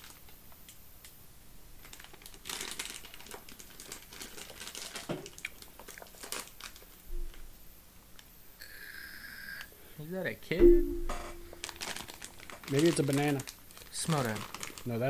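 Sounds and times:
plastic bag crinkling: 0:01.8 - 0:07.0, 0:11.6 - 0:15.0.

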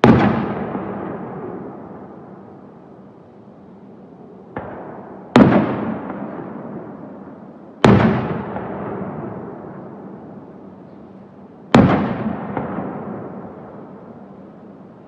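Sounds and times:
firework booms with echo: 0:00.0 - 0:02.2, 0:04.5 - 0:07.0, 0:07.8 - 0:09.8, 0:11.7 - 0:13.9.

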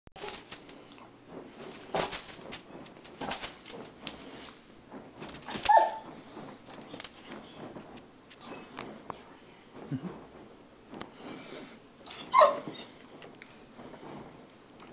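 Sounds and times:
dog whining: 0:05.5 - 0:06.1, 0:12.0 - 0:12.9
dog barking: 0:05.6 - 0:06.0, 0:12.3 - 0:12.8.

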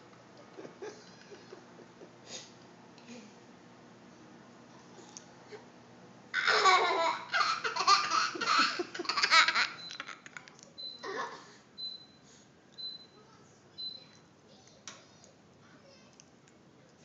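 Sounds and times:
girl giggling: 0:00.4 - 0:02.2, 0:06.4 - 0:11.6.

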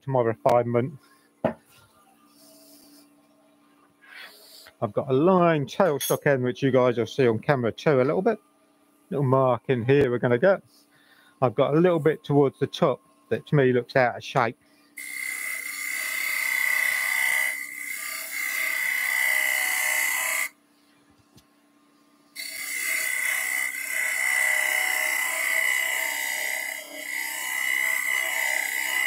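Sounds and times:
turning tool cutting spinning wood: 0:22.4 - 0:29.0.

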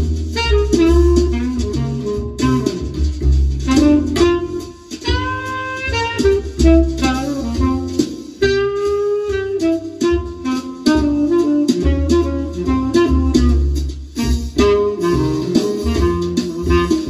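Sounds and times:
bass line: 0:00.0 - 0:17.0
saxophone melody: 0:00.4 - 0:17.0.

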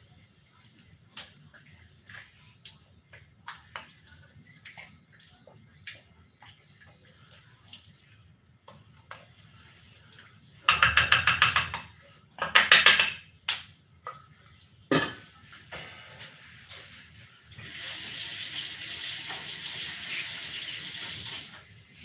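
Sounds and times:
spoon rattling in cooking pot: 0:10.7 - 0:13.3.

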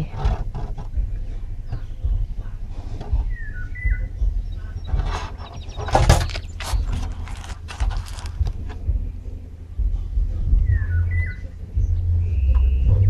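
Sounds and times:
low rumble: 0:00.0 - 0:13.0
bird chirps: 0:01.0 - 0:07.4, 0:10.6 - 0:13.0
plastic box rustling and clicking: 0:05.0 - 0:08.8.

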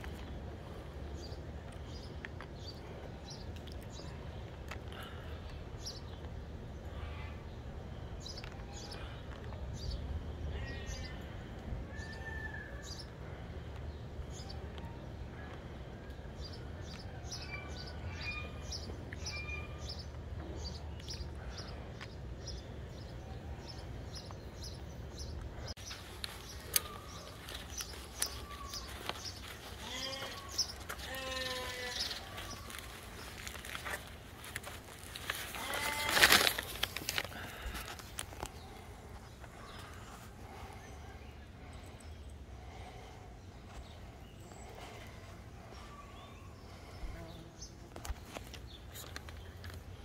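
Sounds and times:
small birds chirping: 0:00.0 - 0:12.1, 0:12.8 - 0:50.0
farm animals bleating: 0:26.8 - 0:33.6, 0:35.2 - 0:36.7.

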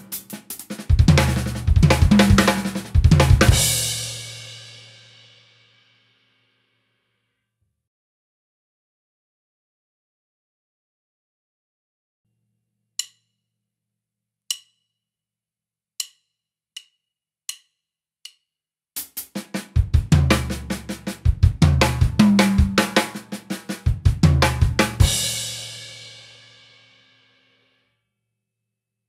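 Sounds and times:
drum fill on acoustic drum kit: 0:00.0 - 0:05.5, 0:19.0 - 0:26.8.

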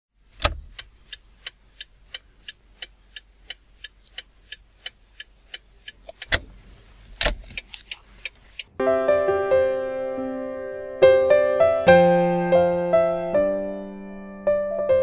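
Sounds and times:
sharp ticking: 0:00.2 - 0:06.6.

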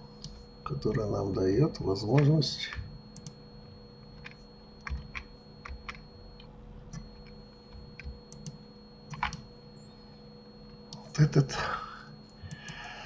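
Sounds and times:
faint electrical hum: 0:00.0 - 0:13.0
keyboard and mouse clicks: 0:04.2 - 0:07.4, 0:08.0 - 0:09.5.

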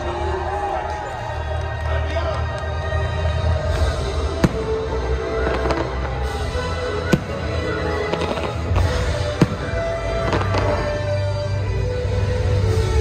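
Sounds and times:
show music: 0:00.0 - 0:13.0
fireworks bangs: 0:03.8 - 0:11.4.

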